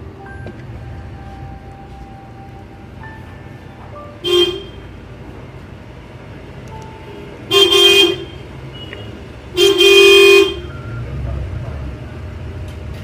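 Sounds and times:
vehicle horn honking: 4.1 - 5.0, 7.4 - 10.8.

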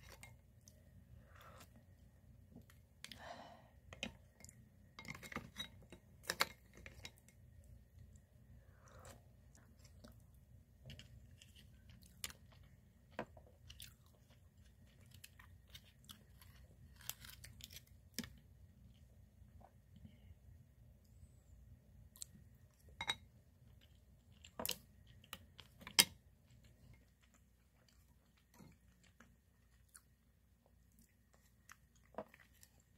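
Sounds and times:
person chewing: 8.2 - 19.0.

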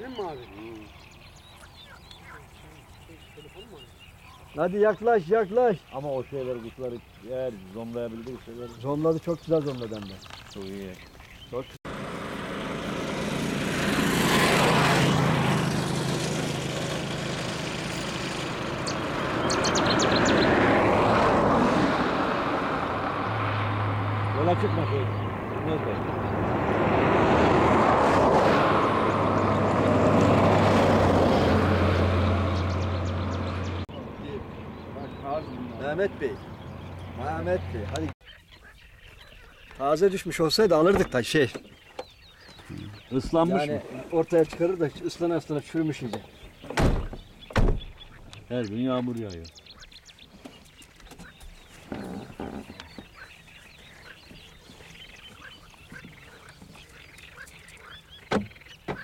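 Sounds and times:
small birds chirping: 0.0 - 23.1, 23.9 - 26.8, 32.3 - 59.0
motor vehicle engine running: 11.9 - 38.1
frogs croaking: 51.3 - 59.0.

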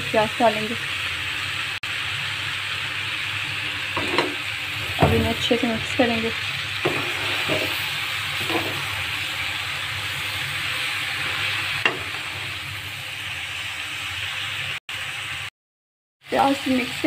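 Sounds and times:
food sizzling in oil in a wok: 0.0 - 15.5, 16.2 - 17.0.

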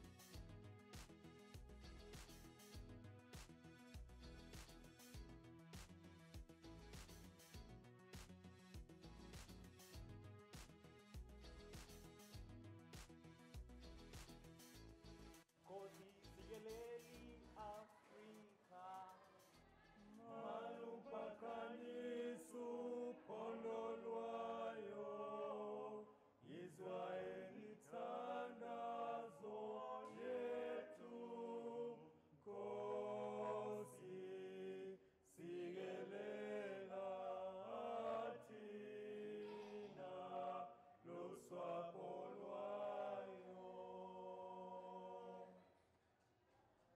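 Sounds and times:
male vocal quartet singing a cappella: 15.7 - 19.4, 20.1 - 45.6.

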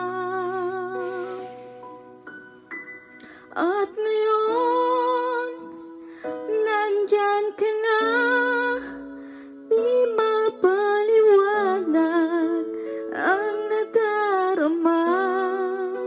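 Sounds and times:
woman singing into microphone: 0.0 - 1.5, 3.5 - 5.7, 6.5 - 9.0, 9.7 - 16.0
instrumental backing track: 0.0 - 15.0.

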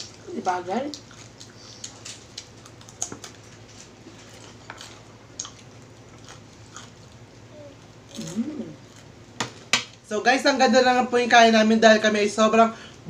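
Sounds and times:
chewing crispy chicken skin: 0.9 - 9.2.

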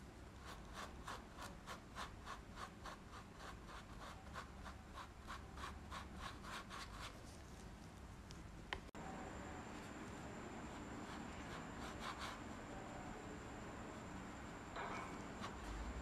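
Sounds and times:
paintbrush scrubbing on canvas: 0.4 - 8.5, 10.7 - 12.6.

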